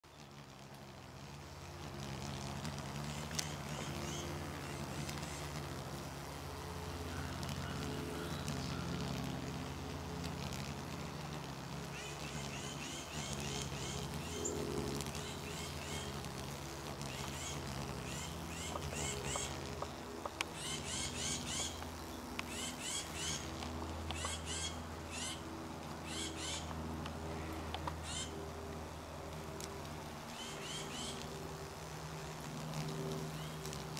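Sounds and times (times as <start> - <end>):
moth wings humming: 0.0 - 33.9
bird chirping: 24.1 - 25.4.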